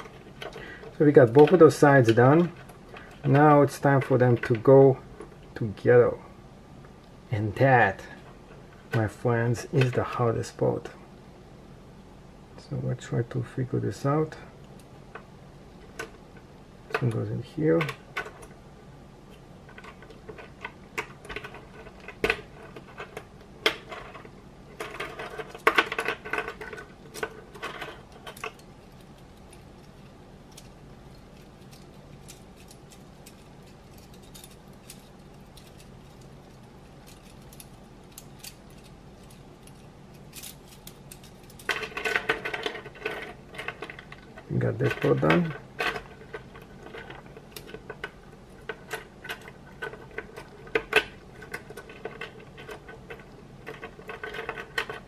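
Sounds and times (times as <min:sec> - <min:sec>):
plastic pieces clicking and clattering: 0:24.8 - 0:55.0.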